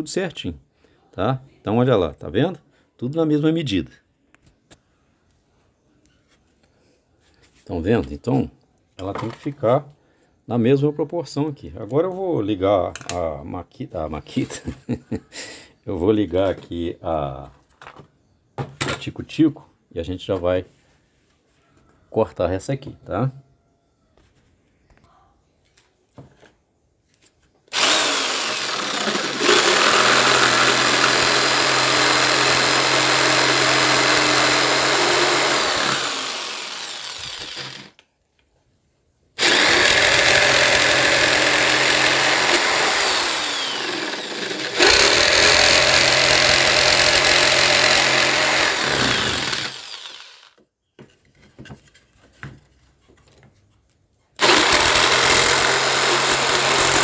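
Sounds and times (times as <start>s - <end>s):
electric jigsaw cutting wood: 27.7s - 38.0s, 39.4s - 50.6s, 54.4s - 57.0s
light knocks and handling: 51.0s - 54.0s.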